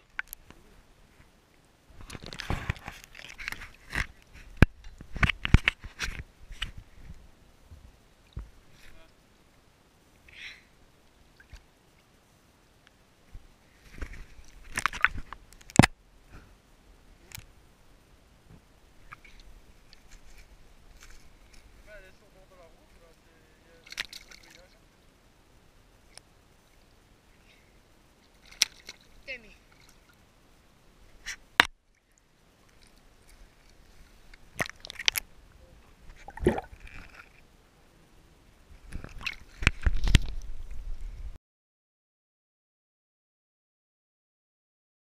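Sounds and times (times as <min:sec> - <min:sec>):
water sloshing and dripping: 0:23.8 - 0:24.7, 0:28.2 - 0:30.2, 0:36.1 - 0:37.4, 0:38.9 - 0:40.4
water splash: 0:36.1 - 0:37.2, 0:39.0 - 0:40.2.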